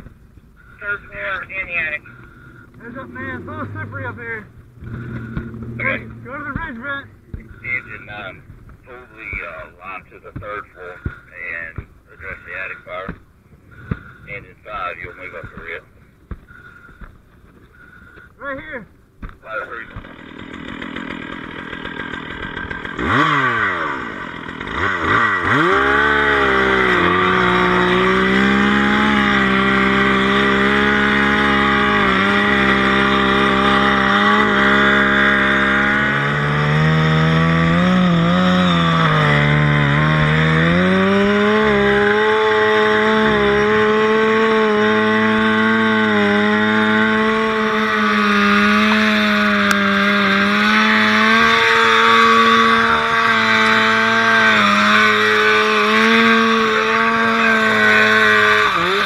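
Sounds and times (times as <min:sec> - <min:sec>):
gas-powered saw revving: 0:00.6 - 0:13.1, 0:16.4 - 0:16.9, 0:19.6 - 0:59.0.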